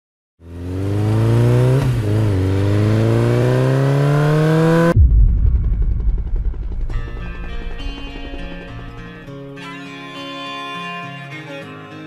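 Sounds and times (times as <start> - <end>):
car engine accelerating hard: 0.4 - 5.0
deep rumble: 4.8 - 9.5.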